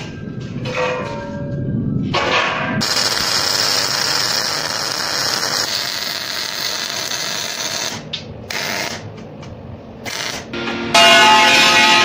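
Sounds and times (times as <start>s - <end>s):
welding arc crackling and hissing: 2.8s - 9.2s, 10.0s - 10.6s.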